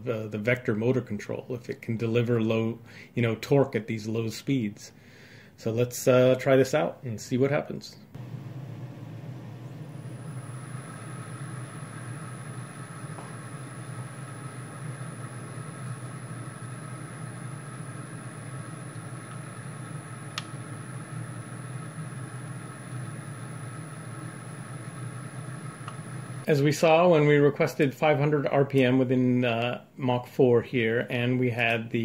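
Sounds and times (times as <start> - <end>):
router spindle humming and whining: 8.2 - 26.4.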